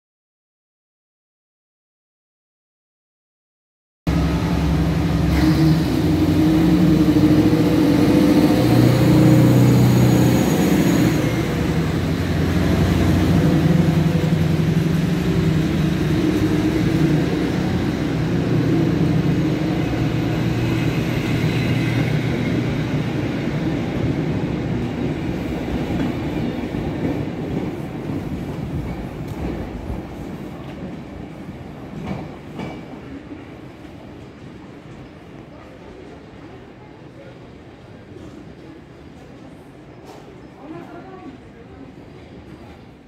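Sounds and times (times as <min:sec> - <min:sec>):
train wheels on rails: 0:04.1 - 0:36.7
diesel locomotive engine: 0:04.1 - 0:43.0.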